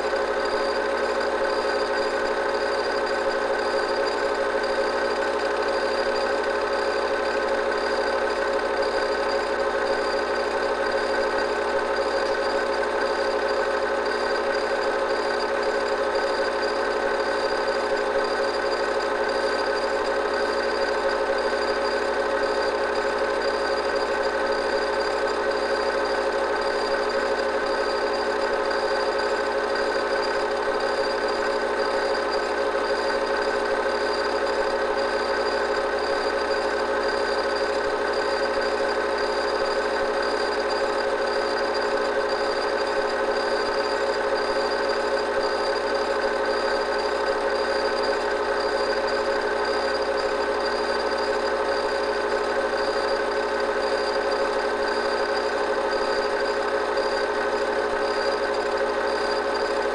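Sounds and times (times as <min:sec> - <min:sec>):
film projector whirring: 0:00.0 - 0:59.9.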